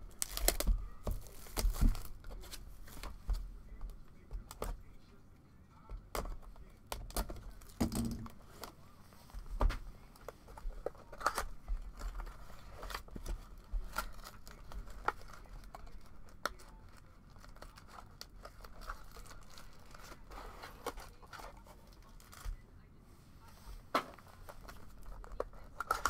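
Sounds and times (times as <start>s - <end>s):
plastic shrink-wrap crinkling: 0.0s - 3.1s, 10.9s - 22.5s
cardboard and paper rustling: 0.0s - 5.1s, 5.8s - 22.6s, 23.4s - 26.0s.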